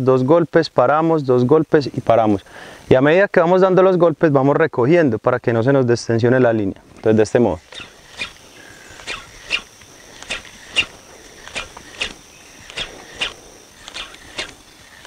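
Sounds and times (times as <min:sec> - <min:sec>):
fishing rod and line clicks: 0:07.7 - 0:15.0.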